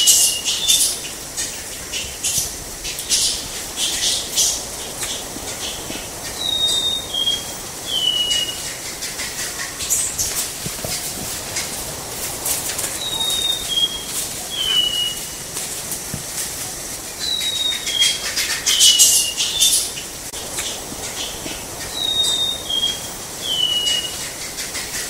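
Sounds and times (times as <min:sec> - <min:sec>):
crackling clicks and hiss: 0:00.0 - 0:25.0
bird singing whistled notes: 0:06.3 - 0:08.7, 0:13.0 - 0:15.4, 0:17.2 - 0:19.9, 0:21.9 - 0:24.2.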